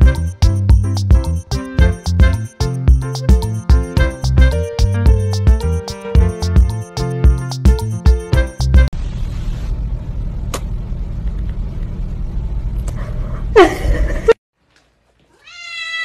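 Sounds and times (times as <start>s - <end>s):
long cat meow: 15.4s - 16.0s.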